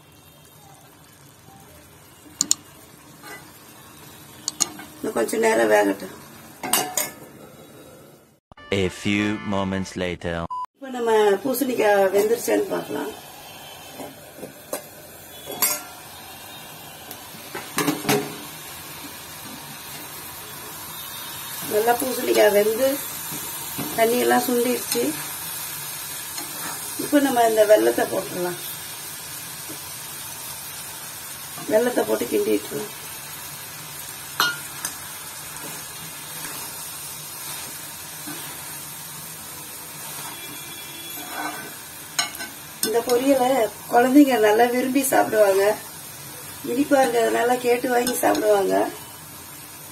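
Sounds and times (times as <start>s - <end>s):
food sizzling in a pan: 0.0s - 8.4s, 10.8s - 49.9s
metal spatula clinking on pan: 15.6s - 15.9s, 34.4s - 34.7s, 41.2s - 43.3s
metal spoon clinking in pot: 15.6s - 15.9s.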